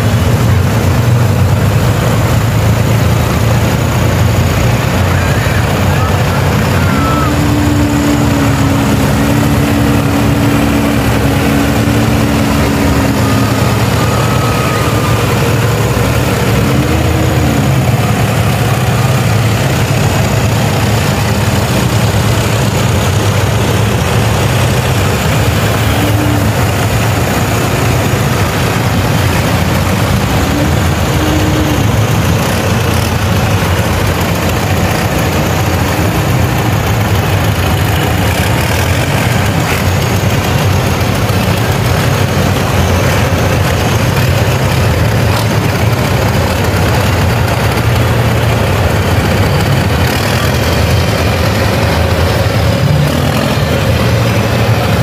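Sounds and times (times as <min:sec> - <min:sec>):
tractor engines idling: 0:00.0 - 0:55.0
short rising and falling tones: 0:04.4 - 0:33.0.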